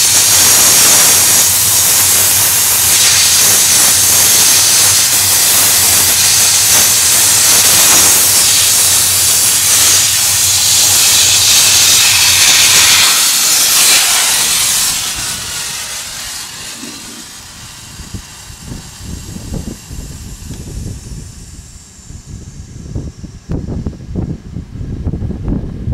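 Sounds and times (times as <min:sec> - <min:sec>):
steam jet hissing: 0:00.0 - 0:24.3.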